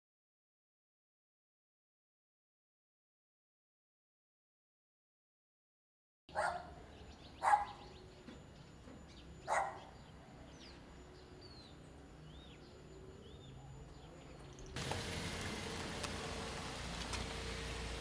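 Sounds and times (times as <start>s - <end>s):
dog barking: 6.3s - 6.8s, 7.4s - 7.9s, 9.5s - 10.0s
small birds chirping: 6.3s - 16.2s.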